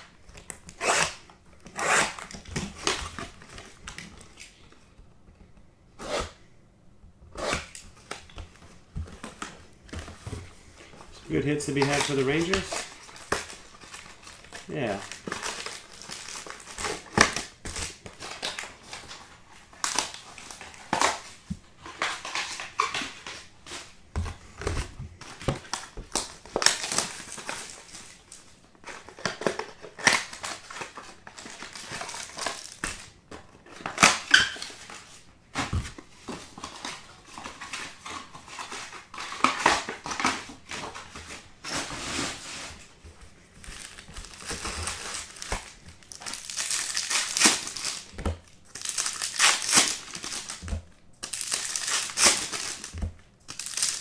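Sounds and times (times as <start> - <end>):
card wrappers crinkling: 10.2 - 35.2, 43.5 - 54.0.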